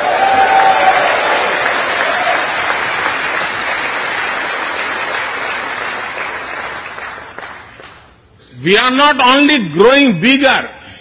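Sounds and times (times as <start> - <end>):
large audience applauding: 0.0 - 8.2.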